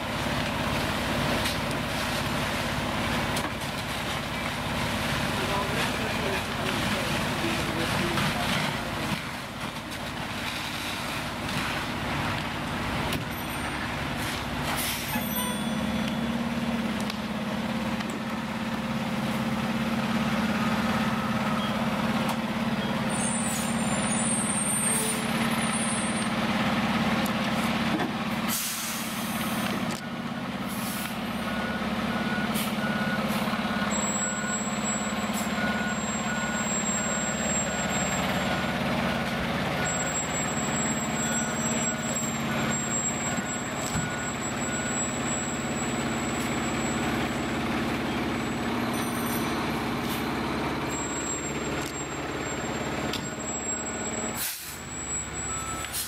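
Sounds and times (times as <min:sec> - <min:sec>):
diesel engines running: 0:00.0 - 0:56.0
truck backup alarm beeping: 0:12.6 - 0:14.3, 0:14.9 - 0:27.6, 0:28.6 - 0:56.0.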